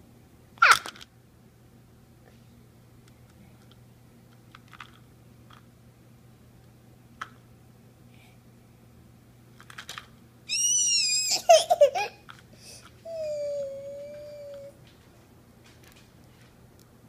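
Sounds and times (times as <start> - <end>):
toddler squealing: 10.5 - 11.9
toddler humming: 13.0 - 14.8
toddler voice sounds: 13.0 - 14.8.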